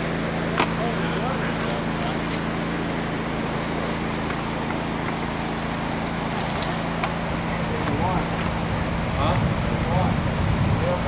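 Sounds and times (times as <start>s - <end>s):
low mechanical hum: 0.0s - 11.0s.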